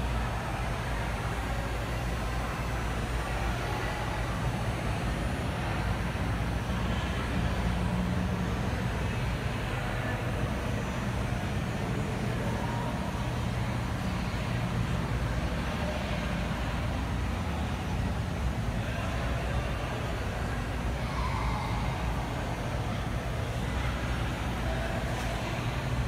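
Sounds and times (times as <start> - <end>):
diesel locomotive engine idling: 0.0 - 26.0.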